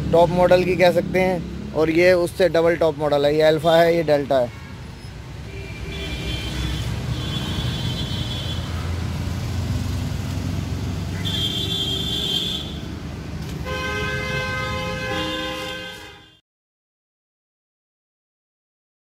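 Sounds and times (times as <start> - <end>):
road traffic rumbling: 0.0 - 16.4
low multi-tone vehicle horn: 4.5 - 8.8, 11.2 - 12.8, 13.6 - 16.4
high-pitched vehicle horn: 5.5 - 8.8, 11.2 - 12.8, 13.6 - 16.4.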